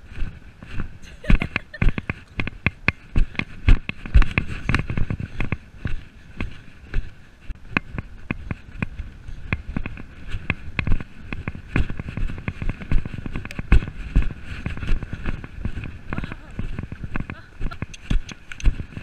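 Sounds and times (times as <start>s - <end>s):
pony hoofbeats on grass: 0.0s - 19.0s
bridle and saddle jingling: 12.0s - 19.0s.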